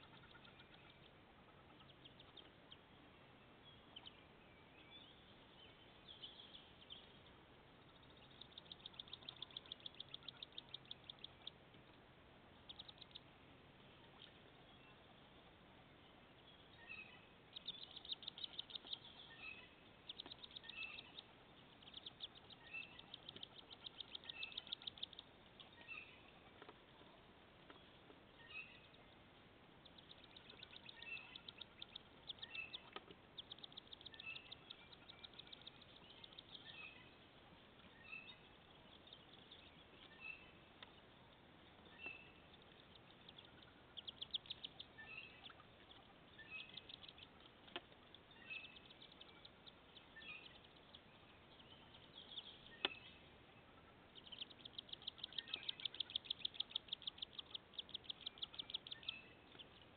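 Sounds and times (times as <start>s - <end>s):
ducklings peeping: 0.0s - 59.9s.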